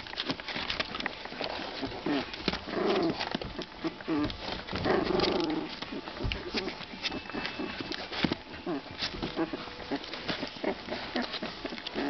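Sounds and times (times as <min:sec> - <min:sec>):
paws scratching and knocking box: 0:00.0 - 0:12.0
puppies growling: 0:00.0 - 0:12.0.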